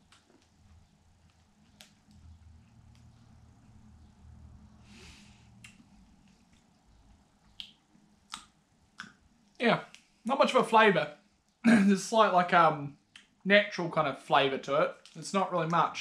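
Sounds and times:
soft sharp clicks: 0:01.2 - 0:03.3.

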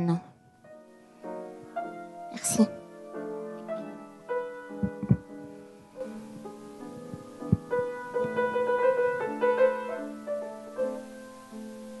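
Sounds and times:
slow piano music: 0:00.0 - 0:12.0
soft low thumps: 0:04.8 - 0:05.3, 0:06.1 - 0:08.5.

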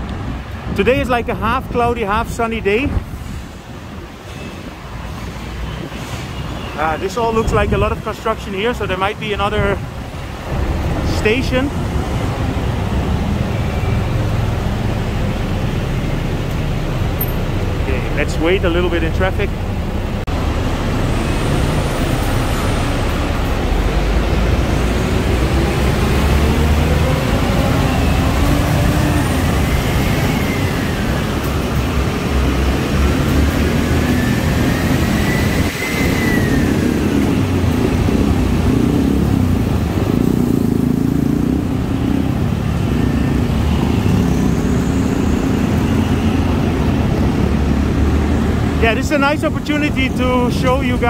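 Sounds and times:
car and motorbike engines: 0:00.0 - 0:51.0
engine revving: 0:20.3 - 0:49.0.

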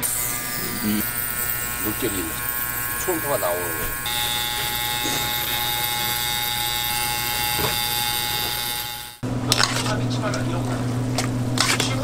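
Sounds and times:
ultrasonic machine buzzing: 0:00.0 - 0:09.3.

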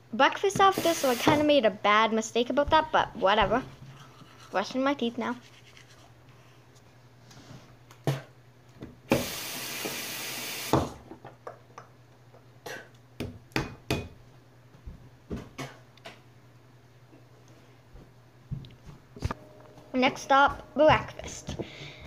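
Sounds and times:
tap water running: 0:00.6 - 0:01.5, 0:09.1 - 0:10.9.

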